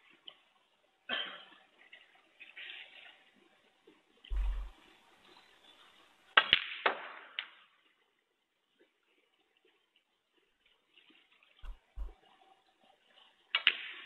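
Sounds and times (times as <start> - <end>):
dull thump: 4.3 - 4.7, 11.6 - 12.1.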